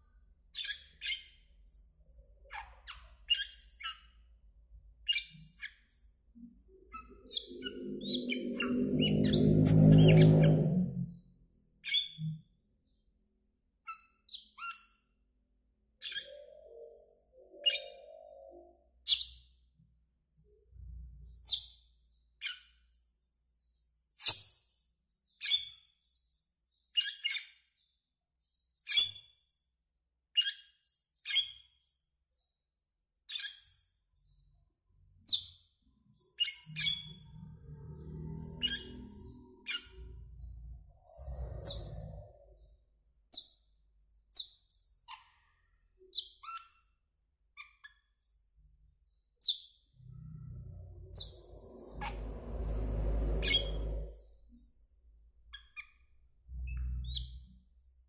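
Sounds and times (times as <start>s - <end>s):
low rumble: 6.1s - 11.5s, 36.6s - 43.3s, 49.9s - 57.4s.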